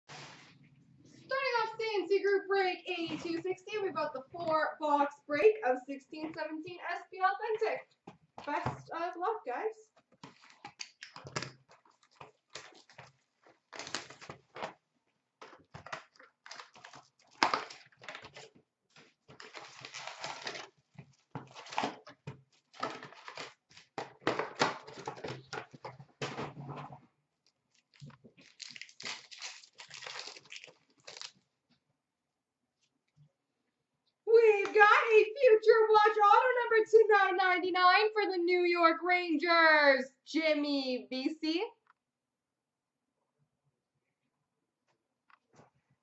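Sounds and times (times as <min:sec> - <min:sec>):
card wrappers tearing and crinkling: 0:10.2 - 0:14.8, 0:15.4 - 0:25.6, 0:27.7 - 0:31.5.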